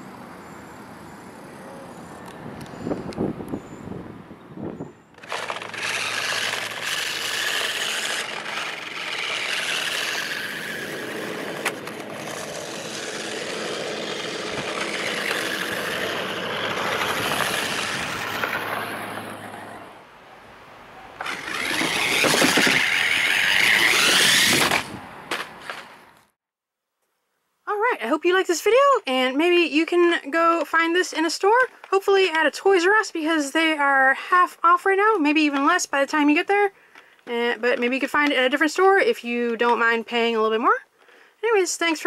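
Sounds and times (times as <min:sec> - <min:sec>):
toy car electric motor whirring: 0:05.2 - 0:19.8, 0:21.2 - 0:25.0.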